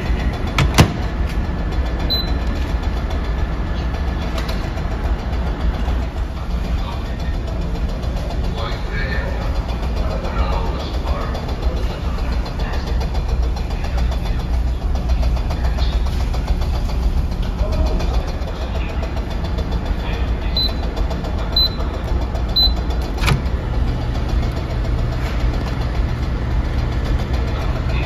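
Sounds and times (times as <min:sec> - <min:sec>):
ferry engines droning: 0:00.0 - 0:28.0
microwave beeps: 0:02.1 - 0:02.5, 0:20.5 - 0:20.9, 0:21.5 - 0:21.9, 0:22.5 - 0:22.9
microwave door click: 0:23.2 - 0:23.6.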